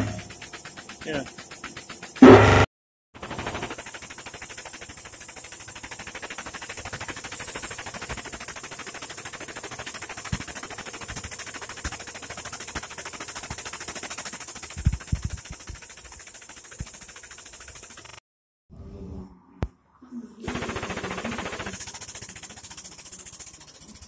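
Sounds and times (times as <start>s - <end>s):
sharp low metal knocks: 2.2s - 2.7s.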